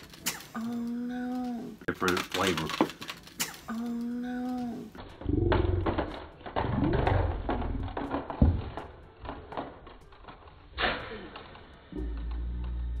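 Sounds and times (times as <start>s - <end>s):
plastic tray clicking and crinkling: 1.3s - 3.6s.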